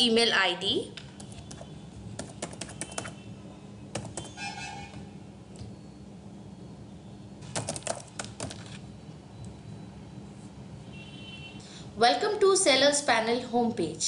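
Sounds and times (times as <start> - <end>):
keyboard key clicks: 7.5 - 8.8.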